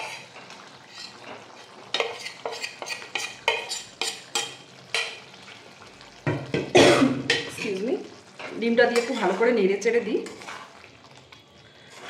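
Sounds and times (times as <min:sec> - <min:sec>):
curry gravy simmering: 0:00.0 - 0:12.0
metal spatula clinking on pot: 0:08.9 - 0:09.5.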